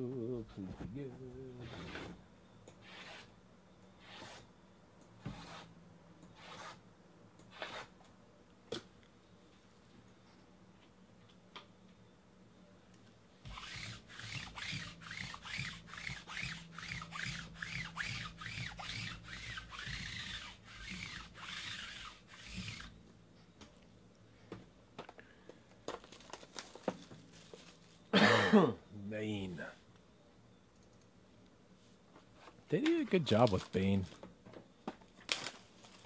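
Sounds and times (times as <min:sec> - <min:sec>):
lint roller rubbing on felt: 0:01.6 - 0:02.2, 0:02.8 - 0:03.3, 0:04.0 - 0:04.5, 0:05.2 - 0:05.7, 0:06.4 - 0:06.8, 0:07.5 - 0:07.9, 0:13.4 - 0:22.9
plastic wrap clicks and crinkles: 0:25.8 - 0:28.0, 0:32.8 - 0:34.2, 0:35.0 - 0:36.0.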